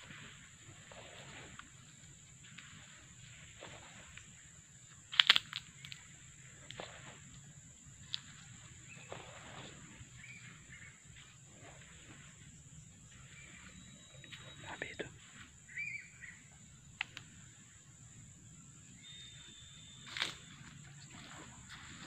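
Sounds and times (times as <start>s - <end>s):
night insects droning: 0.0s - 22.0s
sharp twig crackle: 5.1s - 6.1s
footsteps crunching on dry leaves: 20.1s - 22.0s.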